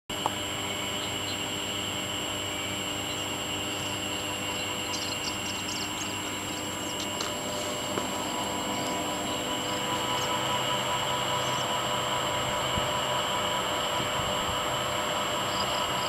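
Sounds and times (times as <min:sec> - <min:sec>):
high-pitched drone: 0:00.1 - 0:16.0.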